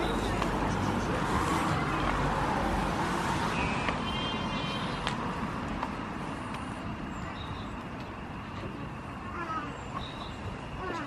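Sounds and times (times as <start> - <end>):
distant traffic: 0.0 - 11.0.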